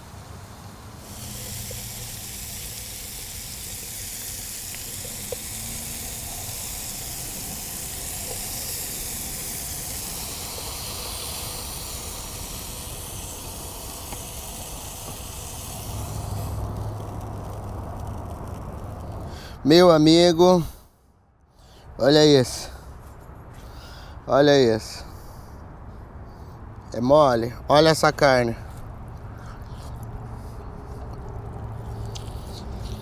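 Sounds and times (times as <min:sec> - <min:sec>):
meat sizzling in a frying pan: 0:00.5 - 0:19.1.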